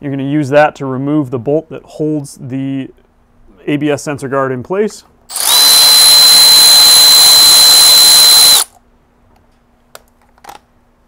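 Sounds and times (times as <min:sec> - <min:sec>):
electric ratchet whining: 0:05.3 - 0:08.7.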